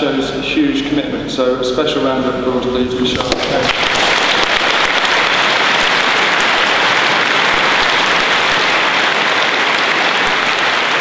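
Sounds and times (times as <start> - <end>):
crowd applauding: 3.2 - 11.0.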